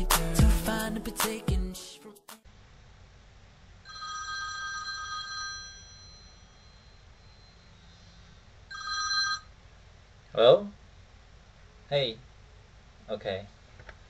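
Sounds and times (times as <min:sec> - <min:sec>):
telephone ringing: 0:03.9 - 0:07.8, 0:08.7 - 0:09.6.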